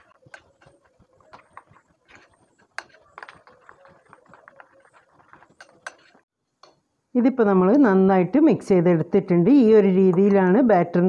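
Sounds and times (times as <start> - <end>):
spoon scraping glass bowl: 0.0 - 6.2.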